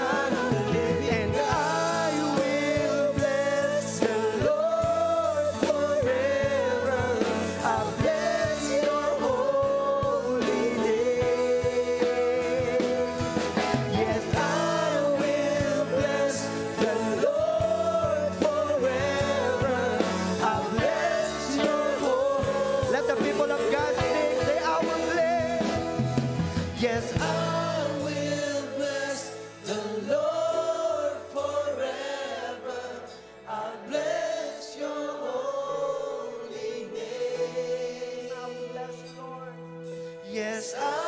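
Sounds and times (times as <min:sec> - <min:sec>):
band with electric guitar and bass: 0:00.0 - 0:31.6
congregation singing along: 0:00.0 - 0:41.0
man singing lead: 0:00.0 - 0:41.0.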